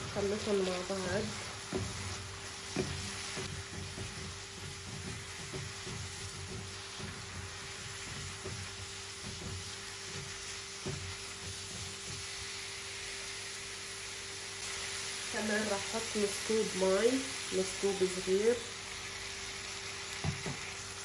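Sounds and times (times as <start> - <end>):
vegetables sizzling in a pan: 0.0 - 21.0.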